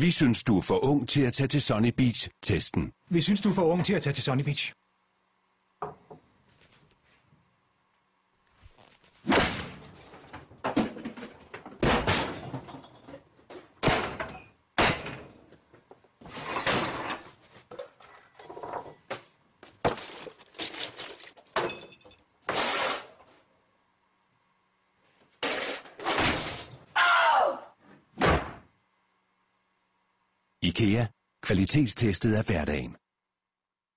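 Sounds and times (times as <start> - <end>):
cupboard doors slamming: 28.2 - 28.6.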